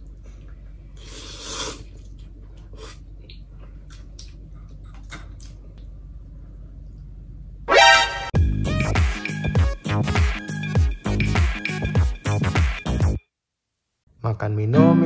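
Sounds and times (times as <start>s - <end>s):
man slurping noodles: 1.0s - 2.0s.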